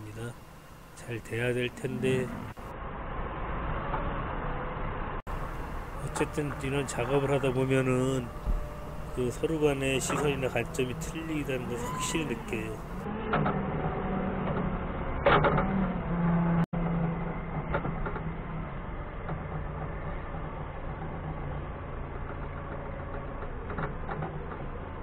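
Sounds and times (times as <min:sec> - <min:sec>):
forklift engine running: 0:05.3 - 0:13.2
short clunks: 0:05.4 - 0:13.5.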